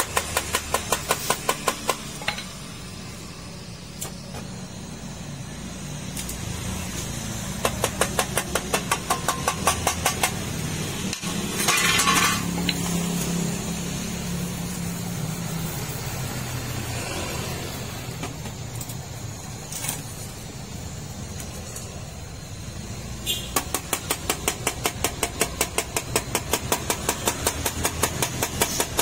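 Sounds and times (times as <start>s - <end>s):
rapid metal taps: 7.6s - 10.4s, 23.6s - 29.0s.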